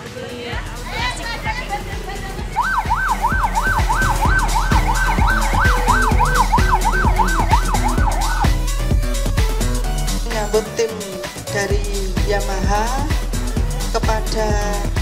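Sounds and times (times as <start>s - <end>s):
music with steady beat: 0.4s - 15.0s
police siren yelping: 2.4s - 9.0s.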